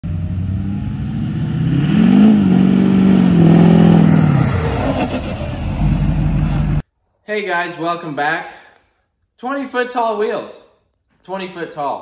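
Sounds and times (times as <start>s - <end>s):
pickup truck engine revving: 0.0s - 6.8s.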